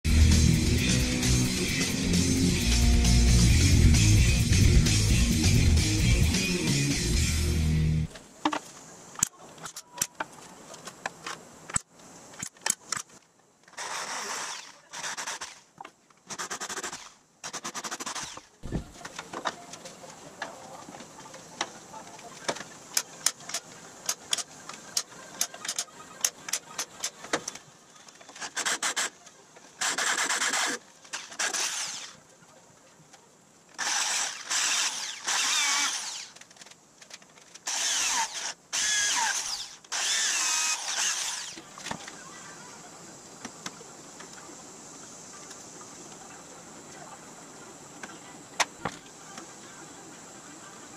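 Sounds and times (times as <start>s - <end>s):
electric drill running: 29.8s - 32.2s, 33.8s - 36.4s, 37.7s - 41.6s.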